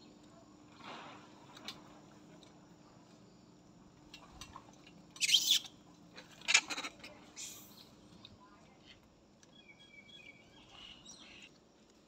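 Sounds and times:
baby monkeys squealing: 5.2 - 5.7.

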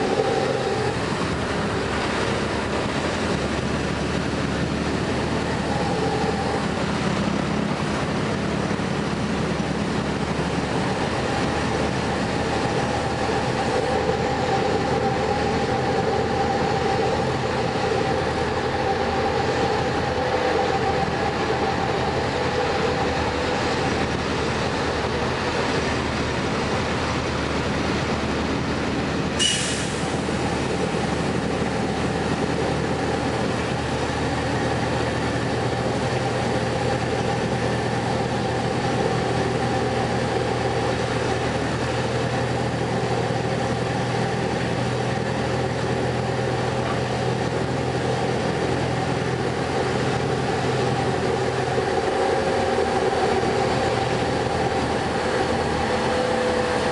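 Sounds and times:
bus engine drone: 0.0 - 56.9
road rumble: 0.0 - 56.9.

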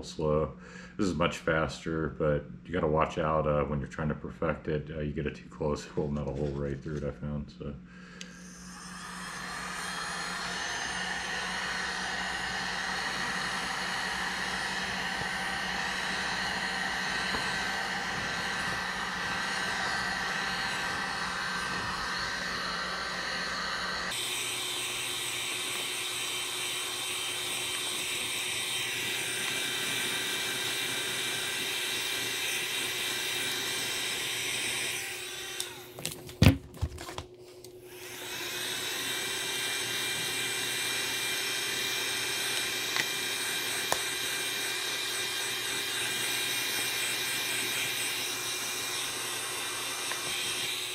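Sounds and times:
heat gun blowing air: 8.1 - 36.2, 37.8 - 50.9.

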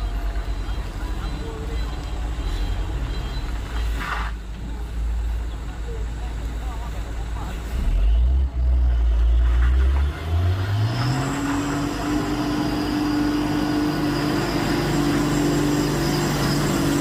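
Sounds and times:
diesel truck engine pulling: 0.0 - 17.0
thin high whine: 11.4 - 17.0.

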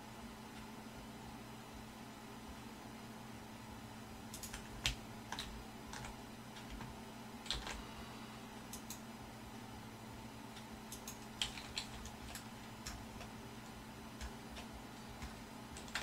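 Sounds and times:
faint steady hum: 0.0 - 16.0
computer keyboard keystrokes: 4.3 - 7.8, 8.7 - 9.0, 10.6 - 13.3, 14.2 - 16.0.

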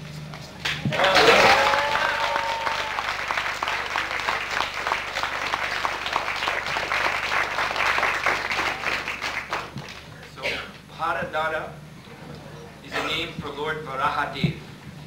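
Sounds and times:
audience applauding: 0.6 - 10.3.

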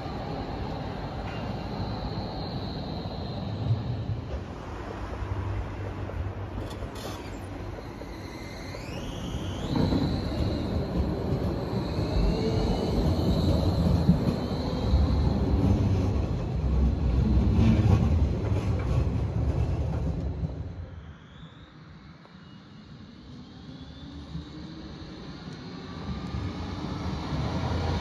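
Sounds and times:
wheels rumbling on rails: 0.0 - 21.0
tram electric drive whining: 0.0 - 28.0.

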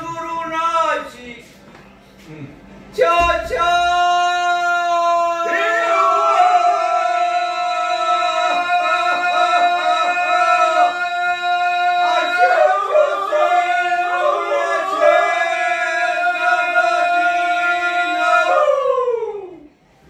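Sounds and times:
men singing polyphonically: 3.0 - 18.8.

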